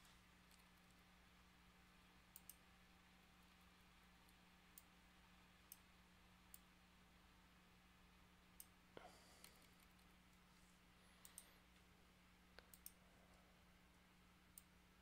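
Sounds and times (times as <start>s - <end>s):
low steady hum: 0.0s - 15.0s
computer mouse clicks: 2.3s - 2.7s, 4.7s - 5.0s, 5.6s - 5.9s, 6.5s - 6.7s, 8.6s - 8.8s, 11.2s - 11.5s, 12.6s - 13.0s, 14.5s - 14.8s.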